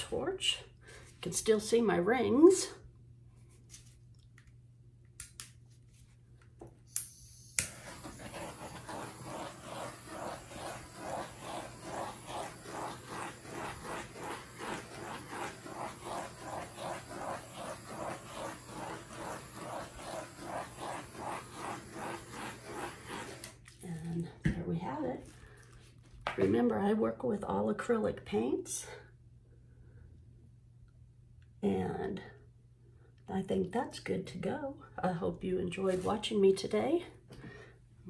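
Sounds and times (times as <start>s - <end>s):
torch igniter clicks: 6.9s - 7.8s
pulsing torch hiss: 6.9s - 23.5s.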